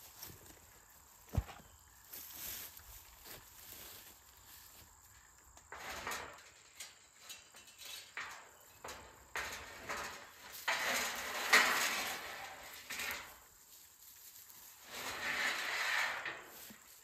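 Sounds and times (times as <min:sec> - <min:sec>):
footsteps in dry grass: 0:00.0 - 0:05.5, 0:12.4 - 0:15.0, 0:16.4 - 0:17.0
insects chirring: 0:00.0 - 0:11.3.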